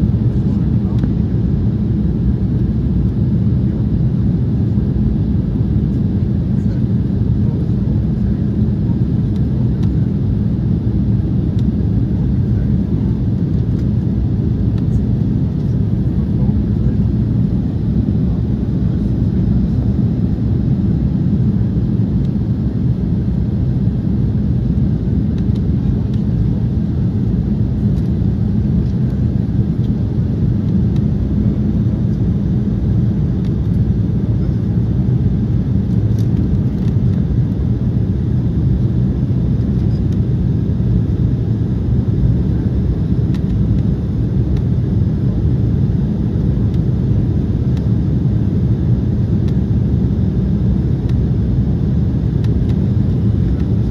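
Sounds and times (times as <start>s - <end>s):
jet engines humming: 0.0s - 53.9s.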